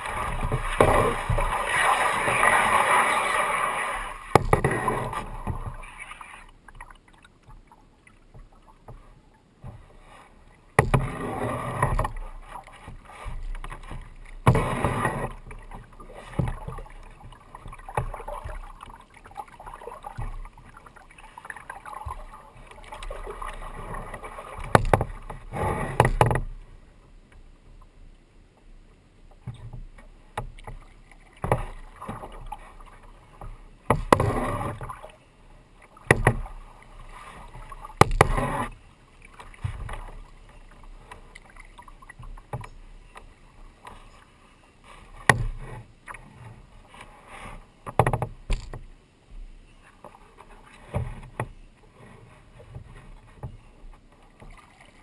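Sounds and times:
kayak paddle splashing water: 0:00.0 - 0:26.7, 0:29.4 - 0:55.0
soft water sounds: 0:00.0 - 0:55.0.

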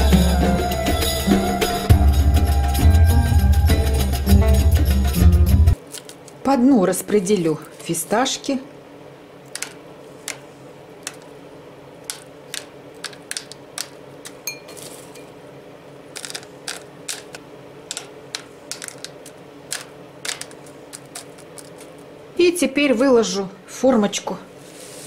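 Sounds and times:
pistachios dropping onto cling film: 0:05.8 - 0:06.4, 0:09.5 - 0:10.4, 0:12.0 - 0:15.2, 0:16.1 - 0:22.1
pistachios clicking against glass: 0:09.5 - 0:10.4, 0:12.1 - 0:14.8, 0:16.2 - 0:22.0.

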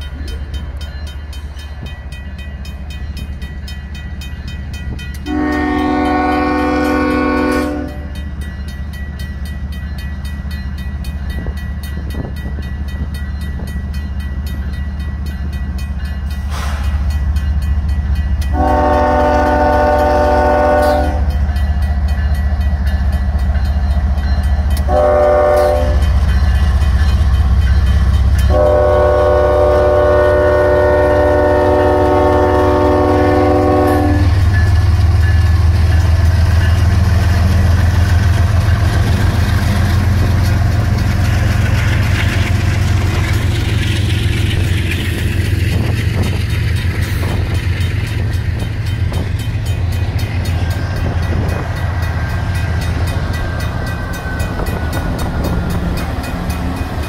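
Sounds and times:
locomotive air horn blast: 0:05.2 - 0:08.1, 0:18.5 - 0:21.3, 0:24.9 - 0:26.0, 0:28.5 - 0:34.4.

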